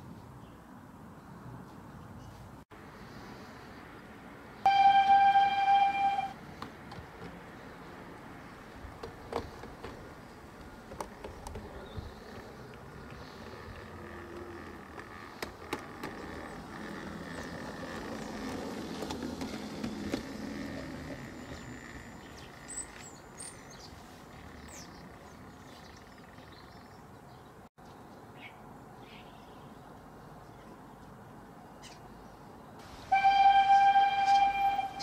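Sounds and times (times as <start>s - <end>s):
steam whistle: 4.7s - 6.4s, 33.1s - 35.0s.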